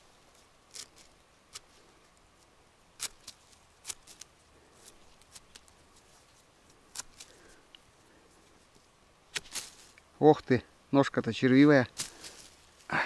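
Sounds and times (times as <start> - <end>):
knife scraping mushroom stem: 0.3 - 1.9, 3.0 - 7.5.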